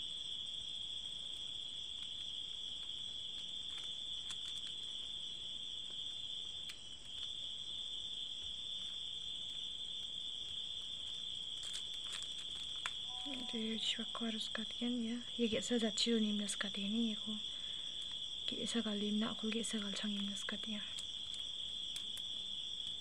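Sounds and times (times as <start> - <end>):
crickets trilling: 0.0 - 23.0
plastic strips clicking and rustling: 3.6 - 5.0, 11.6 - 13.0, 19.4 - 23.0.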